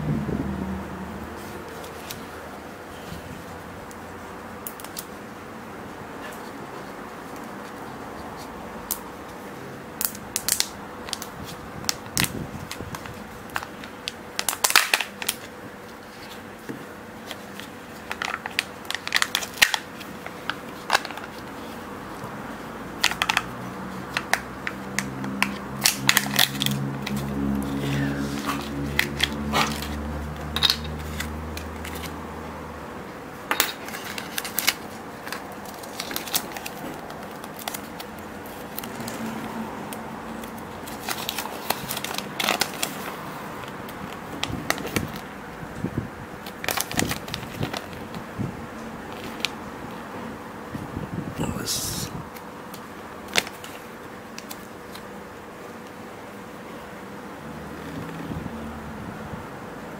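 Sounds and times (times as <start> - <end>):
plastic and foil packaging crinkling: 10.1 - 16.4, 17.2 - 21.8, 33.5 - 39.2, 40.4 - 45.2, 46.4 - 48.2.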